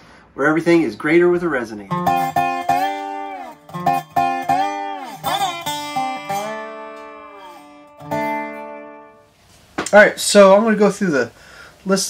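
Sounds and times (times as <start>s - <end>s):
plucked guitar notes: 1.9s - 9.3s.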